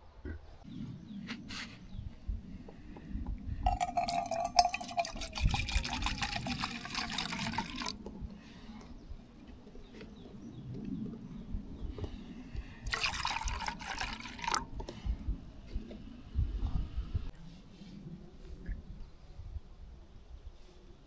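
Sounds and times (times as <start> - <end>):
liquid pouring into container: 3.6 - 8.1, 12.8 - 15.0.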